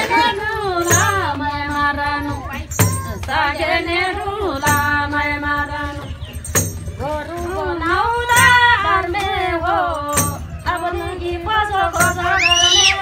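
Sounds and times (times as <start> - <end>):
frame drum beats: 0.0 - 13.0
woman singing wavering notes: 7.0 - 13.0.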